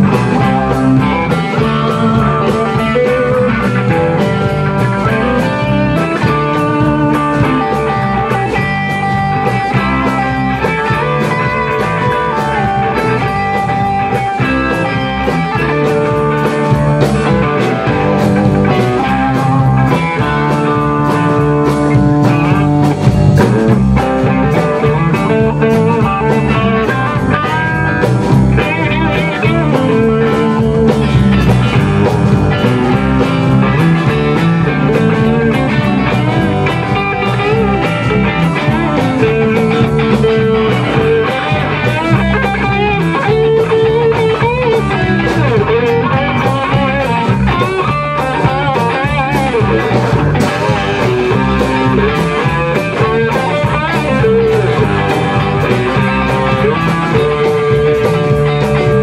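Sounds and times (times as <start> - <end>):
distorted electric guitars: 0.0 - 59.0
drum kit beat: 0.0 - 59.0.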